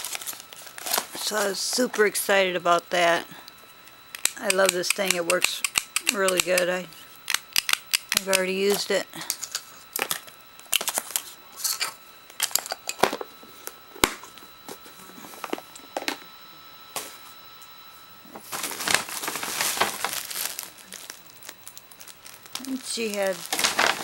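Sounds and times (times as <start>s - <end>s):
plastic bag crinkling: 0.0s - 2.0s, 18.4s - 24.0s.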